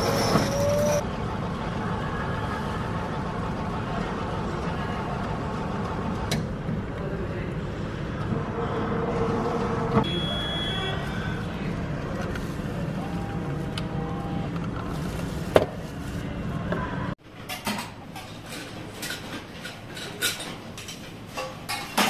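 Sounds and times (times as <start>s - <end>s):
short electronic beep: 10.0s - 11.3s
clinks of bowls and utensils: 17.4s - 22.0s.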